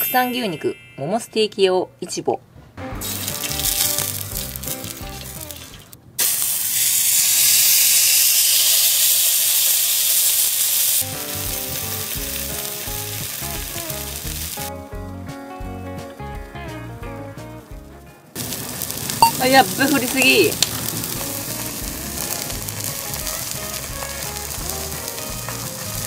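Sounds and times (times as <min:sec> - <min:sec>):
background music: 0:02.8 - 0:05.6, 0:11.0 - 0:18.4, 0:19.1 - 0:26.0
steak sizzling on a griddle: 0:03.0 - 0:05.6, 0:06.2 - 0:14.7, 0:18.4 - 0:26.0.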